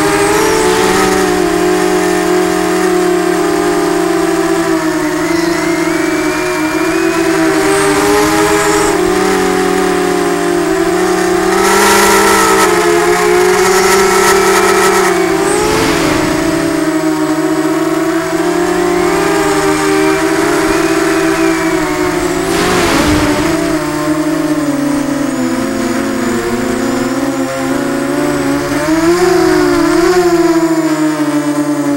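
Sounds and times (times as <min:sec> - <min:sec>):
quadcopter motors whining: 0:00.0 - 0:31.9
rushes of air noise: 0:15.0 - 0:17.2, 0:19.0 - 0:25.0.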